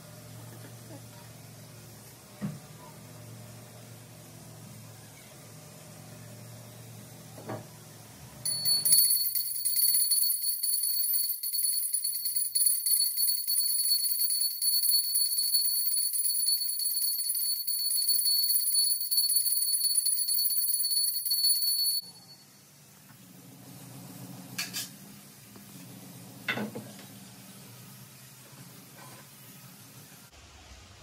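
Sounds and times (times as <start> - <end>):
handheld bell ringing rapidly: 8.5 - 22.4.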